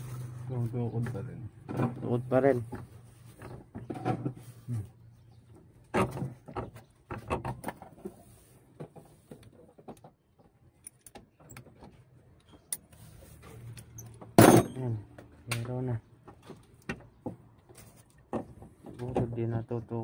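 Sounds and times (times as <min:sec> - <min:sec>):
pliers and linkage clicks and knocks: 0:10.8 - 0:14.8.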